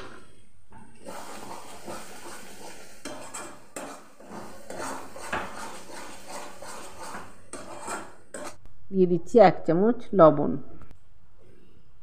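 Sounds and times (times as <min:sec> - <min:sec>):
metal spatula scraping metal pan: 0:01.0 - 0:08.6.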